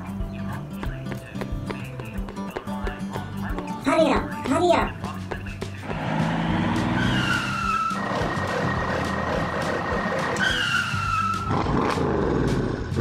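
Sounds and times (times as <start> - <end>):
tyres screeching: 0.2 - 12.0
car engine running: 0.8 - 10.4.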